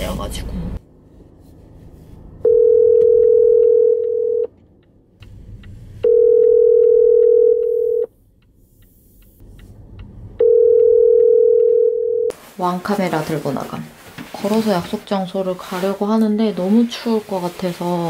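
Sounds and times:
phone ringback tone: 0:02.4 - 0:04.5, 0:06.0 - 0:08.1, 0:10.4 - 0:12.3.

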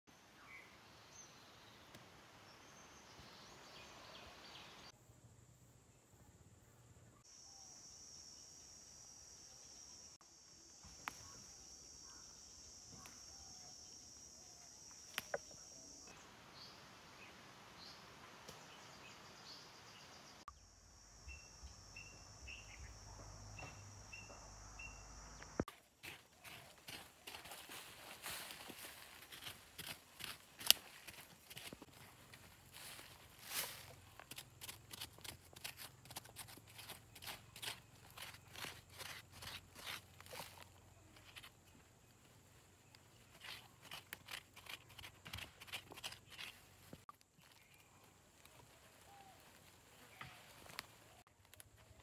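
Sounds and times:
high insect drone: 0:07.3 - 0:16.8
bird chirping: 0:10.9 - 0:25.6.

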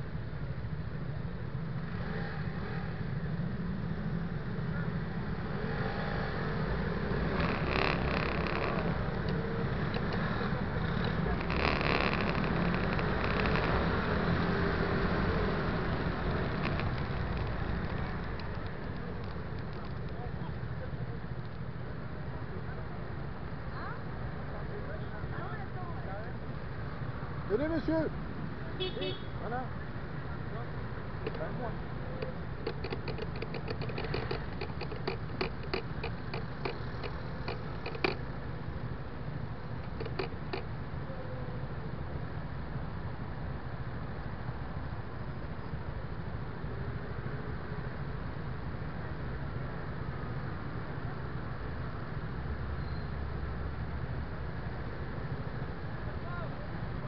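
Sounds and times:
tyres on cobblestones: 0:05.4 - 0:21.7, 0:30.4 - 0:38.6
scooter engine: 0:07.1 - 0:19.5, 0:32.2 - 0:38.2, 0:39.8 - 0:40.6
light clicks and ticks: 0:07.2 - 0:20.2, 0:31.2 - 0:31.5, 0:32.2 - 0:38.2, 0:39.8 - 0:40.7.

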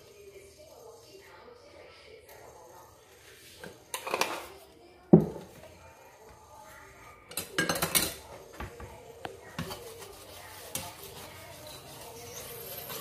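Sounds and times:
spatula scraping in frying pan: 0:09.4 - 0:13.0.

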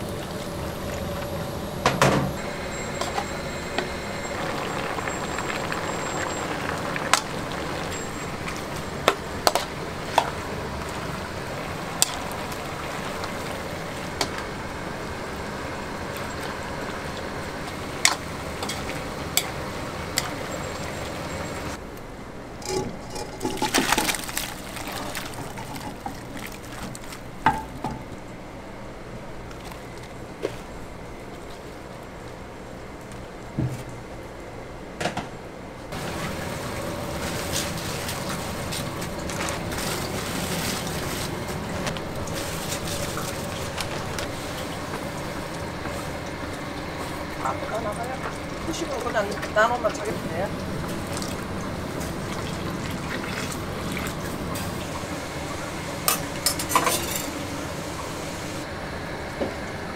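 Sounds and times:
meat sizzling in a pot: 0:02.4 - 0:21.8.

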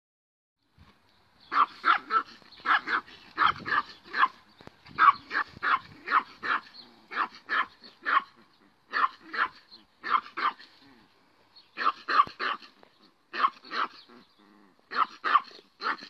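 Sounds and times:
small dog yapping: 0:01.5 - 0:04.4, 0:05.0 - 0:10.7, 0:11.8 - 0:12.7, 0:13.3 - 0:14.2, 0:14.9 - 0:16.0.

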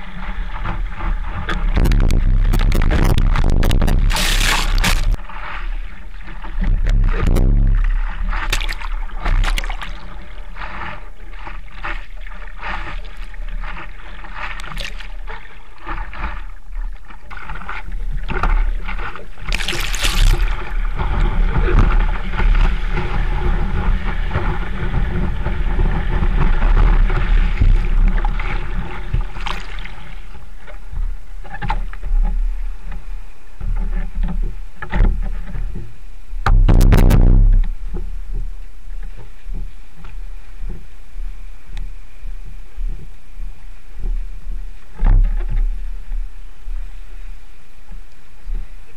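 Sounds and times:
water sloshing and splashing: 0:00.0 - 0:35.7
water rumble on microphone: 0:00.0 - 0:48.9
whitewater rushing: 0:01.8 - 0:05.2
breaking wave splash: 0:01.8 - 0:05.3, 0:19.5 - 0:20.6.

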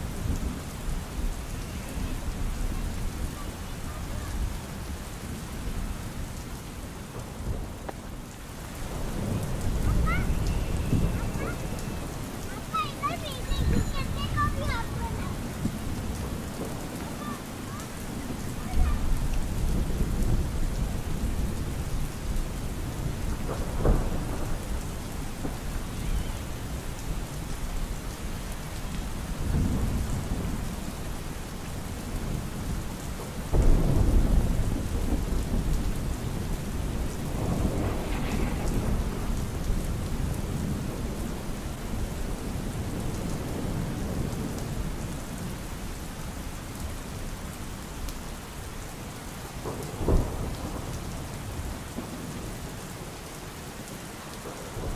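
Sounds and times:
thunder rumbling: 0:00.0 - 0:45.6, 0:49.6 - 0:52.4
steady rain falling: 0:00.0 - 0:54.9.

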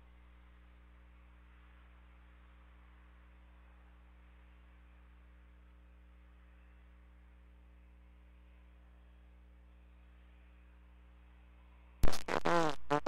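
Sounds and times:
radio transmission click: 0:12.0 - 0:13.0.

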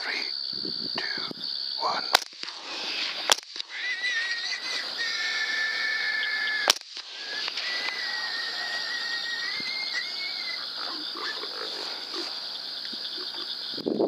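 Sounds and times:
high-pitched insect drone: 0:00.0 - 0:14.0
thin wavering whistling tone: 0:06.2 - 0:10.8.

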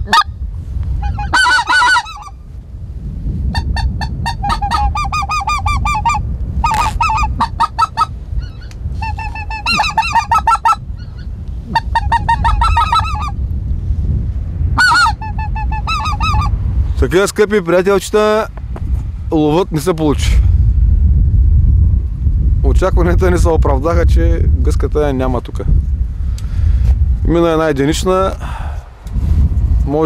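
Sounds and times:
goose call honks: 0:00.0 - 0:00.3, 0:01.0 - 0:02.4, 0:03.5 - 0:13.4, 0:14.8 - 0:16.5
wind rumble on microphone: 0:00.0 - 0:30.0.

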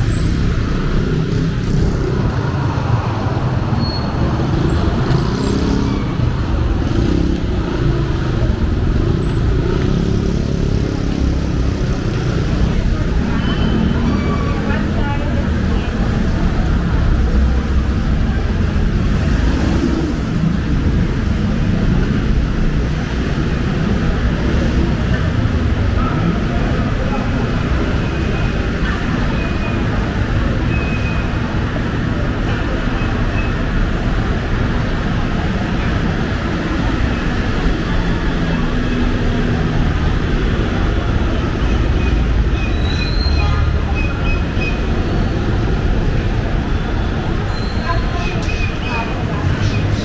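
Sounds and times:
low traffic rumble: 0:00.0 - 0:50.0.

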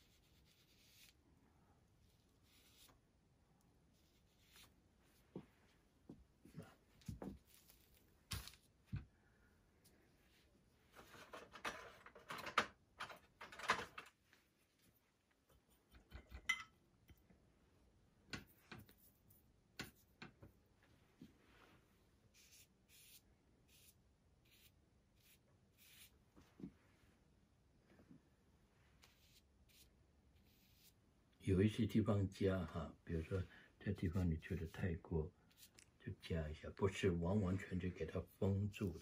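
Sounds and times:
ink brush swishing on paper: 0:00.0 - 0:01.2, 0:03.9 - 0:05.7, 0:29.0 - 0:31.0
clicks and clinks of ceramic dishes: 0:16.2 - 0:16.8.

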